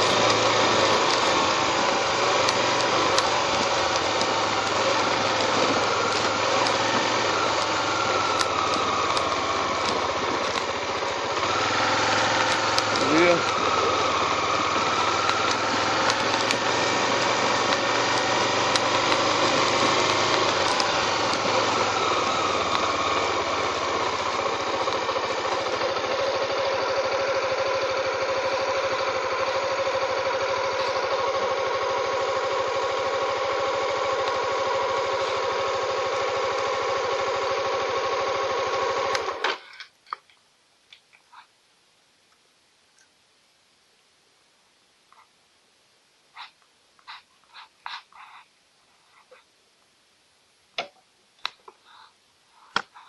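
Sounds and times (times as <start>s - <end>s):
vehicle engine idling: 0.0s - 39.4s.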